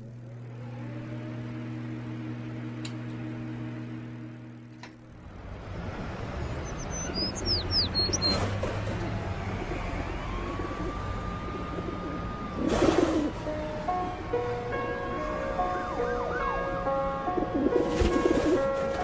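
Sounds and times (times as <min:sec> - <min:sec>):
small birds chirping: 0:06.3 - 0:08.5.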